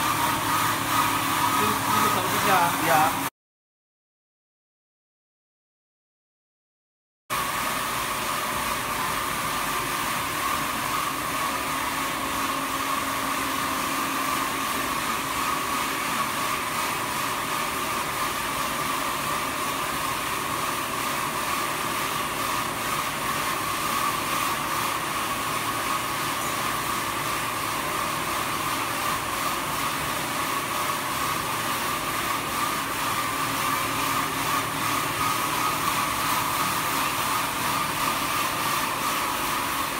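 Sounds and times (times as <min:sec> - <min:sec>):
sanding machine whirring: 0:00.0 - 0:03.3, 0:29.1 - 0:39.9.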